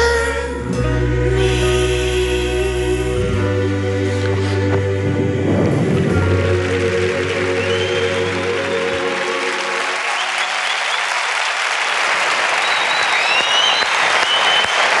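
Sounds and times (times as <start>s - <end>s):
held music chord: 0.0s - 10.0s
audience applauding: 5.9s - 15.0s
whistles: 7.6s - 9.1s, 10.0s - 11.3s, 12.5s - 15.0s.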